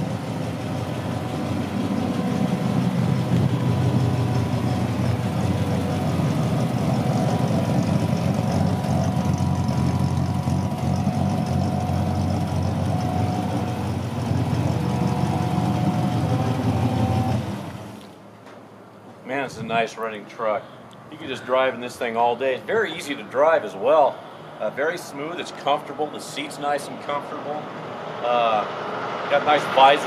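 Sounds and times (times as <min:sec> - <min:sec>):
engine running at low revs: 0:00.0 - 0:18.2.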